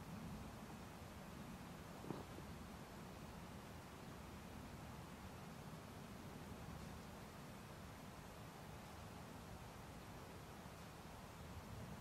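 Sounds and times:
faint steady hiss: 0:00.0 - 0:12.0
soft low rumble: 0:01.9 - 0:02.7.

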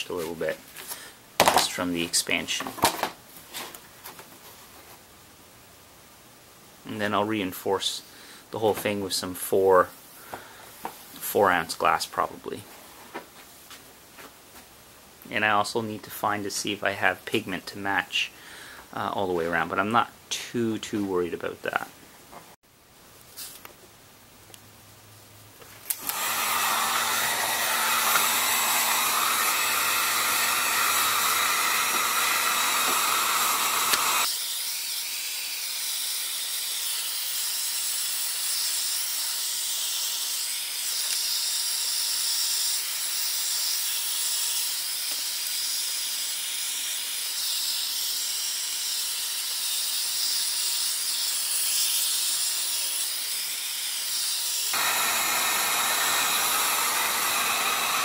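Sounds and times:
heat gun blowing hot air: 0:25.9 - 0:58.0.

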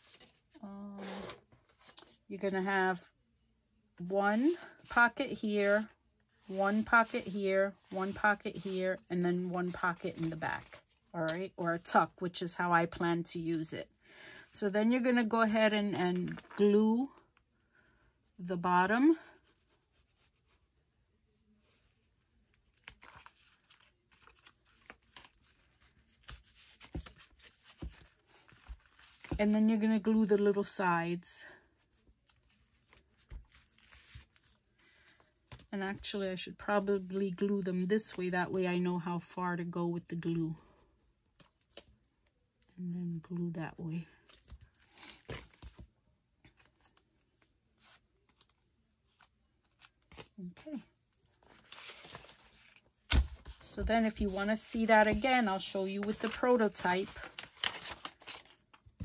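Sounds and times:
paper rustling and crinkling: 0:00.0 - 0:02.2, 0:04.4 - 0:11.9, 0:16.1 - 0:16.7, 0:22.5 - 0:29.6, 0:31.9 - 0:35.7, 0:47.8 - 0:59.0.

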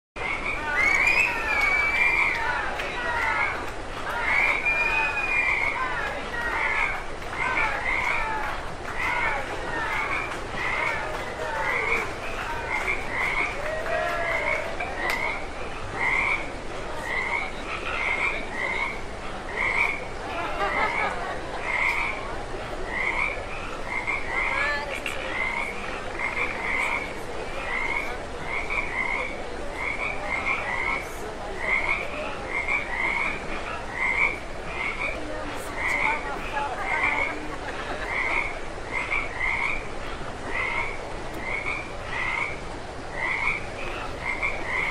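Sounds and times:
murmur of crowd voices: 0:00.2 - 0:44.9
frog croaking: 0:14.5 - 0:20.0, 0:21.6 - 0:22.2, 0:22.8 - 0:37.4, 0:38.1 - 0:44.9.

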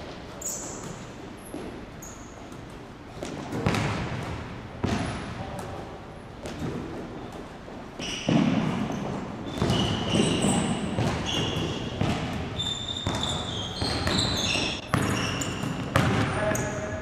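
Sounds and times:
sneakers squeaking: 0:00.0 - 0:17.0
basketball bouncing on hardwood floor: 0:03.2 - 0:05.3, 0:08.2 - 0:16.3.

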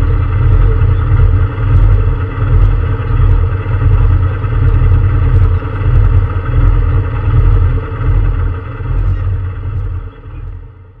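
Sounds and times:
car engine running at low revs: 0:00.0 - 0:11.0.

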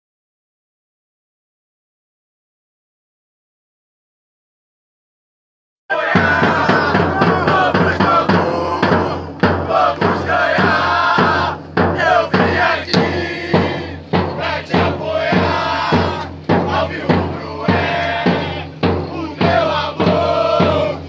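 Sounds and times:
crowd chanting: 0:05.9 - 0:21.0
drums beating: 0:05.9 - 0:21.0.

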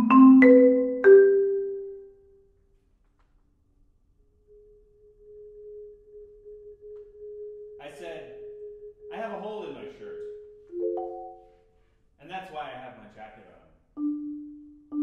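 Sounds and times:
marimba notes: 0:00.0 - 0:02.2, 0:07.8 - 0:11.8, 0:14.0 - 0:15.0
marimba roll: 0:00.0 - 0:02.2, 0:07.9 - 0:11.6, 0:14.0 - 0:15.0.

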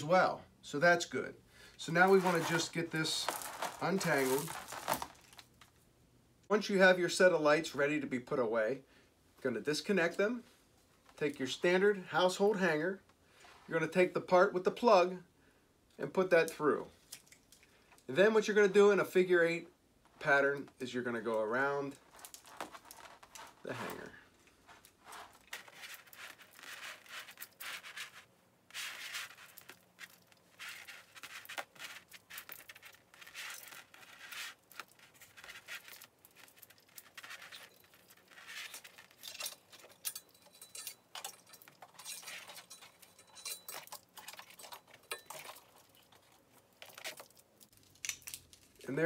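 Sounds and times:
light string rustling and clicking: 0:01.9 - 0:05.8, 0:20.0 - 0:49.0.

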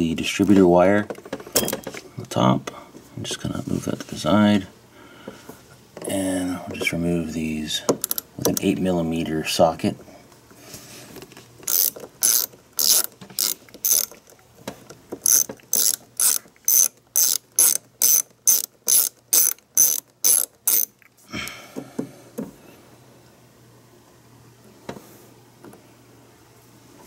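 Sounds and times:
ratchet clicking: 0:08.0 - 0:08.7, 0:11.6 - 0:14.4, 0:15.2 - 0:21.0.

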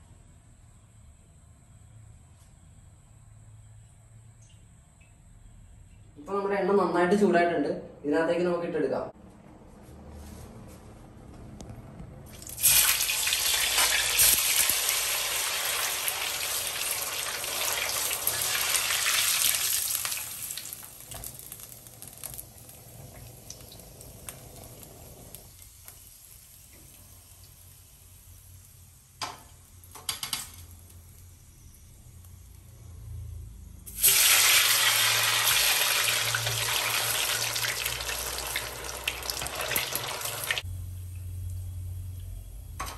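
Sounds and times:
food sizzling in hot oil: 0:12.3 - 0:32.7, 0:33.9 - 0:41.0.

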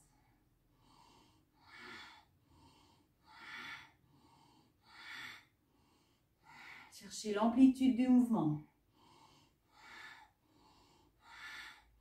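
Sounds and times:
soft inhale: 0:00.0 - 0:06.9.

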